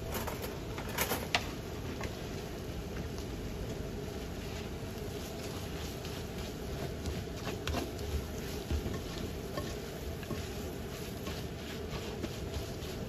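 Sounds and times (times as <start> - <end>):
food sizzling in a pan: 1.8 - 13.0
spatula scraping a pan: 5.2 - 13.0.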